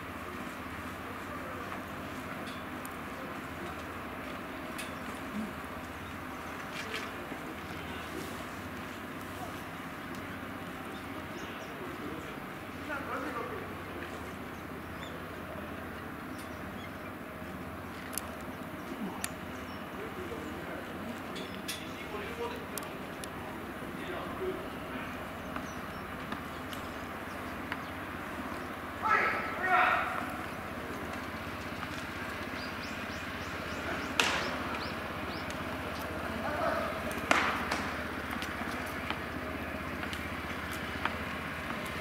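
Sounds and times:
outdoor background noise: 0.0s - 42.0s
sharp snaps: 34.0s - 36.2s
baseball popping into mitt: 34.2s - 34.6s, 37.2s - 38.0s.

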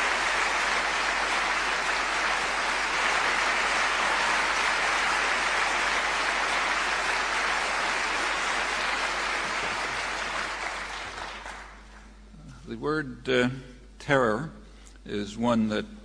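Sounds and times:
audience applauding: 0.0s - 12.1s.

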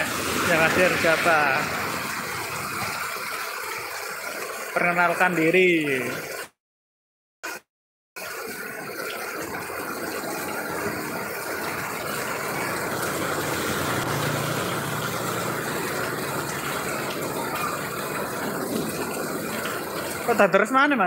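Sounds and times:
heavy rain on street: 0.0s - 3.3s, 9.9s - 20.4s
motorcycle passing: 11.9s - 19.5s.

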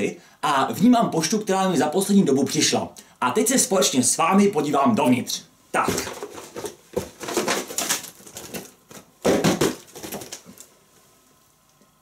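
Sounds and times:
envelopes rustling and sliding: 5.8s - 9.1s
cardboard box shaken: 5.8s - 10.6s.

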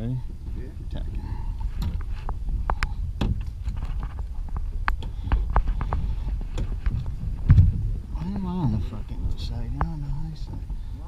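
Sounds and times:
wind on microphone: 0.0s - 11.0s
rigging and sail clicks: 1.0s - 10.9s
heavy thump: 1.6s - 10.0s.

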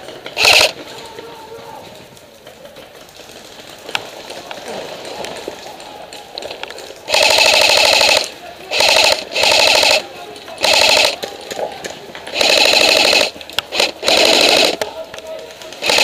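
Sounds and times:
airsoft gun full-auto bursts: 0.4s - 0.8s, 7.1s - 11.3s, 12.3s - 14.8s, 15.8s - 16.0s.

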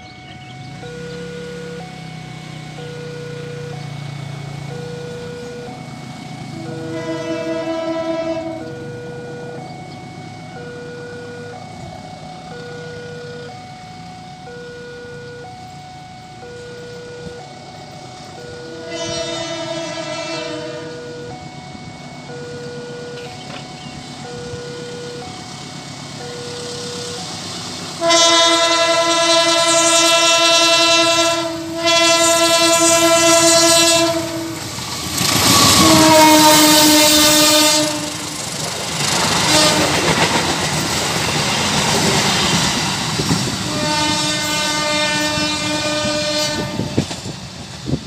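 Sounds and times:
pulsing warning tone: 0.0s - 48.0s
train rumble and rail clatter: 0.0s - 48.0s
locomotive horn blasts: 6.4s - 9.7s, 18.2s - 25.3s, 27.9s - 38.4s, 39.2s - 40.3s, 42.5s - 47.2s.

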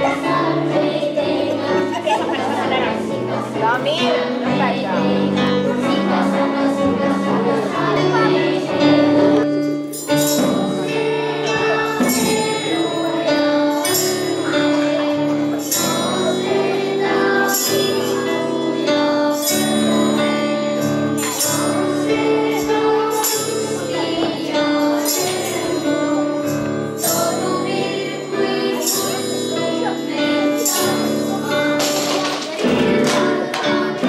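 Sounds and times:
jingle bells shaken: 7.6s - 34.0s.

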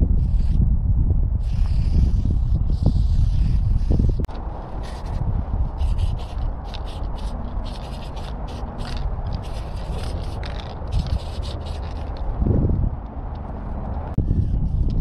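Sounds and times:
wind rumble on microphone: 0.0s - 15.0s
spray paint can hissing: 0.2s - 0.6s, 1.4s - 4.2s, 4.8s - 5.2s, 5.8s - 12.3s.

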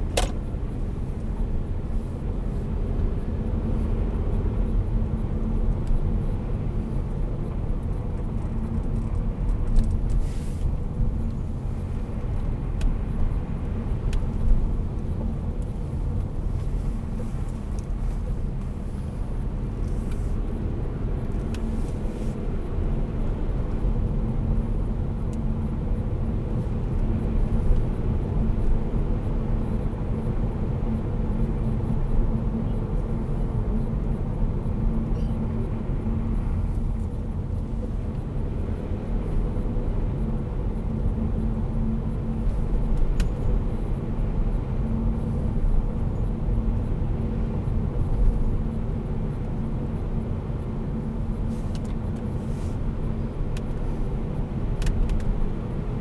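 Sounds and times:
car engine and tyre rumble in cabin: 0.0s - 56.0s.

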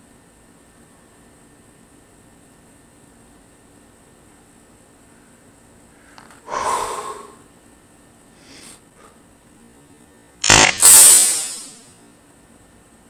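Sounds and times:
airgun firing: 10.4s - 11.8s.

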